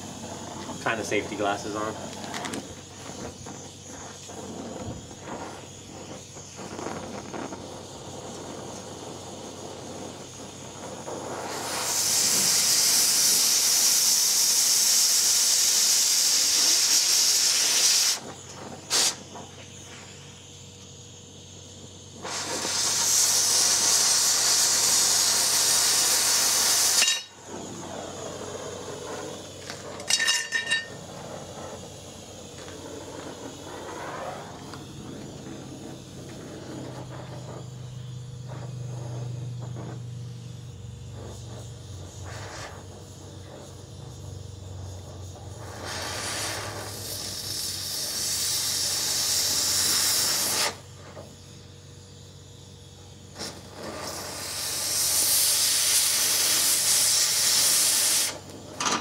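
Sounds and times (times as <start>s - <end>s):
cutting torch oxygen hiss: 0.0s - 59.0s
torch flame rushing: 0.0s - 59.0s.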